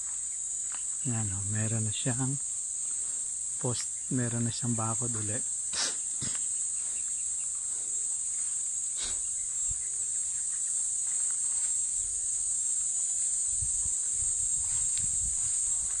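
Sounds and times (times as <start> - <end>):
crickets chirping: 0.0 - 16.0
footfalls on dry ground: 11.0 - 11.9, 13.8 - 16.0.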